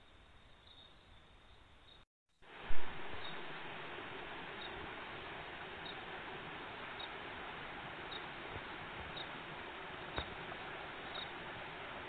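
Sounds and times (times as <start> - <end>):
small river rushing: 2.4 - 12.0.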